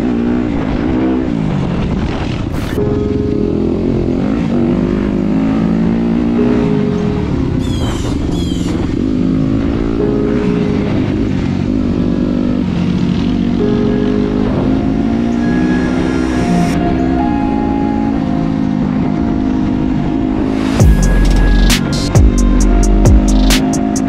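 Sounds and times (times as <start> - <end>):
dirt bike engine accelerating: 0.0 - 24.0
high chirps: 20.5 - 24.0.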